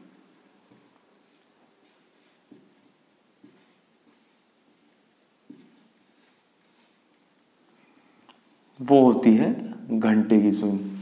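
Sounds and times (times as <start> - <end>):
marker writing on whiteboard: 0.0 - 7.5.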